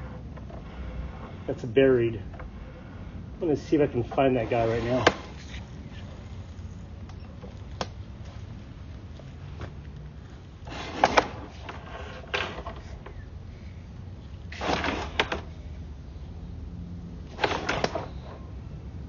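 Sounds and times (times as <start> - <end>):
cable scraping and rattling: 0.0 - 9.7, 10.3 - 13.3, 14.3 - 15.6, 17.3 - 18.5
steady low hum: 0.0 - 19.0.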